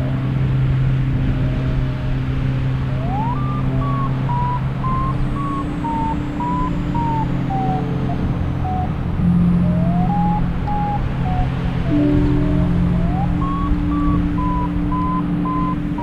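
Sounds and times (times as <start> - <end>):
wind rumbling on microphone: 0.0 - 16.0
variometer beeping: 3.0 - 16.0.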